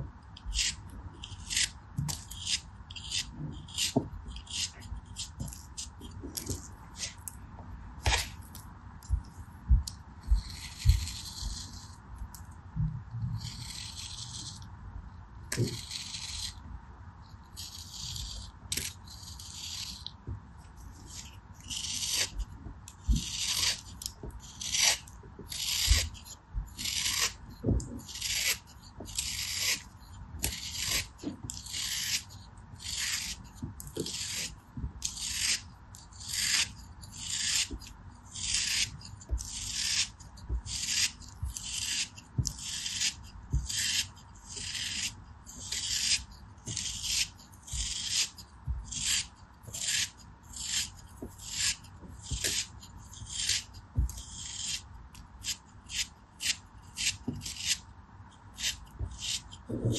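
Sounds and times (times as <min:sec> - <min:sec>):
knife scraping sand: 0:00.5 - 0:05.9, 0:17.5 - 0:20.1, 0:23.2 - 0:27.4, 0:28.0 - 0:54.8, 0:55.4 - 0:57.8, 0:58.5 - 0:59.9.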